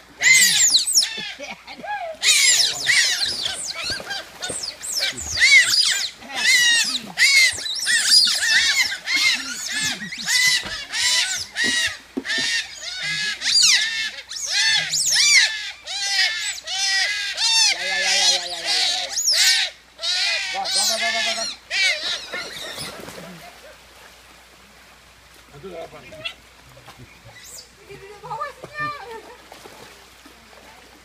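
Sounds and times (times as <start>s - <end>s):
otters squealing chirps: 0.2s - 1.4s, 2.2s - 23.0s.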